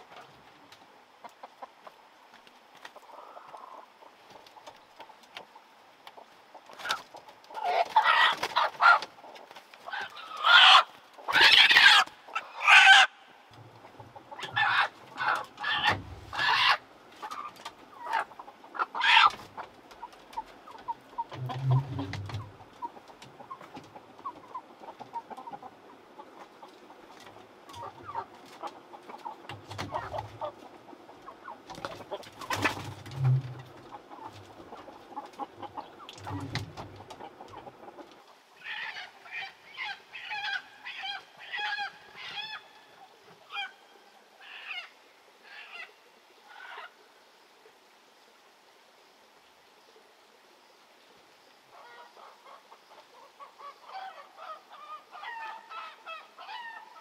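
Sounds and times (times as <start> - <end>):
chickens clucking and squawking: 0.0 - 48.6, 51.6 - 57.0
wings flapping: 6.7 - 10.2, 31.7 - 34.5.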